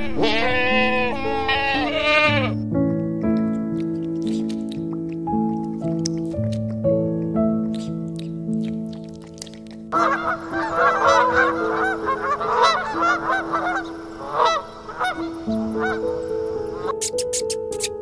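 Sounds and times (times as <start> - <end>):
soft piano music: 0.0 - 18.0
goose honking: 9.9 - 16.9.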